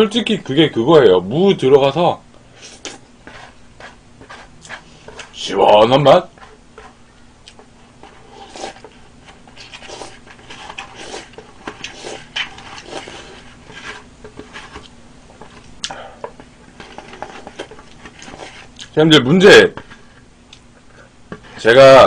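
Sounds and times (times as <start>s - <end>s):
chopsticks scraping a bowl: 2.6s - 7.0s, 8.0s - 15.7s, 16.3s - 18.8s
person sipping soup: 9.5s - 14.1s.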